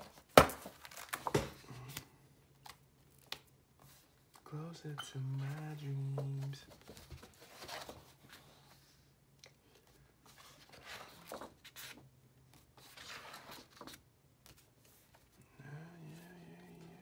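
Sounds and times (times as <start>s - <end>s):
paper pages turning: 5.3s - 8.6s, 10.2s - 15.2s.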